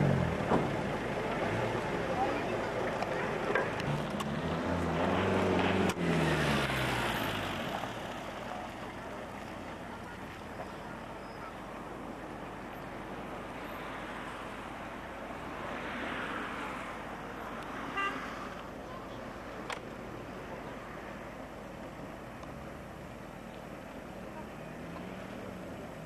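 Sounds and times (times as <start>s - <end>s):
motor vehicle passing by: 0.0s - 10.4s
car approaching: 0.0s - 26.0s.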